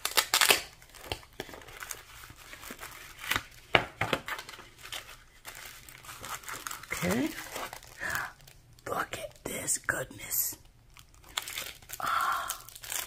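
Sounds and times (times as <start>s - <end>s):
stiff paper rustling and crinkling: 0.0s - 8.6s.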